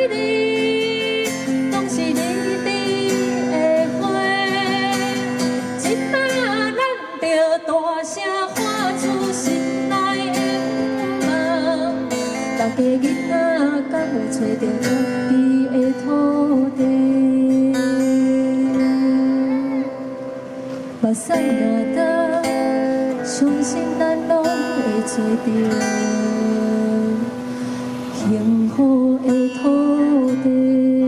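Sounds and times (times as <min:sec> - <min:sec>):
acoustic guitar: 0:00.0 - 0:31.0
woman singing a slow ballad: 0:00.0 - 0:31.0.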